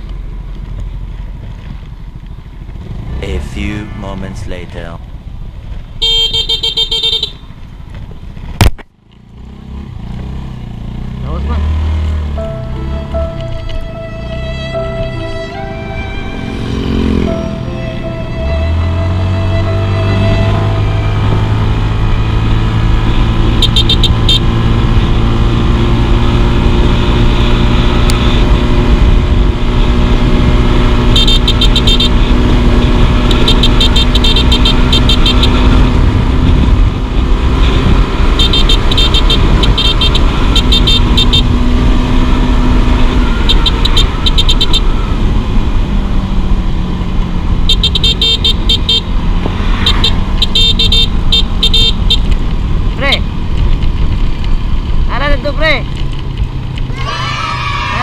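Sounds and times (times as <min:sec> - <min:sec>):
scooter engine running: 0:21.4 - 0:55.1
wind rumble on microphone: 0:24.5 - 0:31.1, 0:35.5 - 0:43.5, 0:52.1 - 0:56.9.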